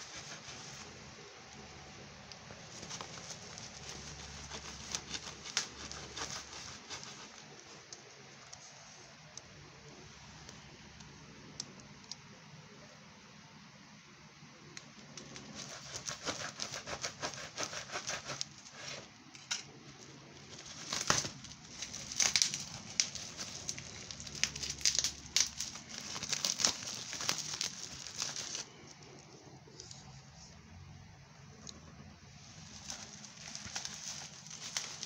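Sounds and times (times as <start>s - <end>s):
bubble wrap crackling: 0.0s - 9.4s, 15.2s - 19.0s, 19.9s - 29.3s, 32.3s - 35.0s.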